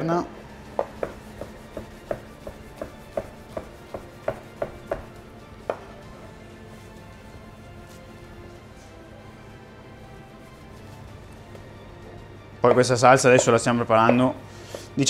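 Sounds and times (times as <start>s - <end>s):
knife tapping on cutting board: 0.8s - 5.1s.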